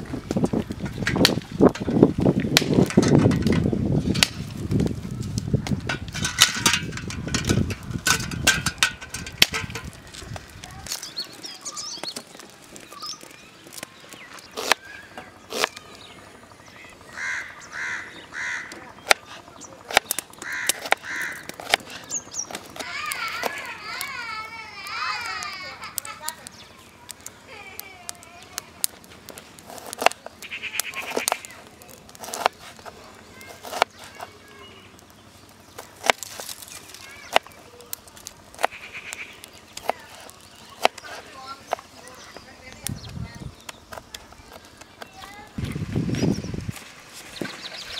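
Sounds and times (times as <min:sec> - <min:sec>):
small birds chirping: 0:08.2 - 0:47.9
crow cawing: 0:17.1 - 0:18.8, 0:20.4 - 0:21.6, 0:30.4 - 0:31.5, 0:38.7 - 0:39.4.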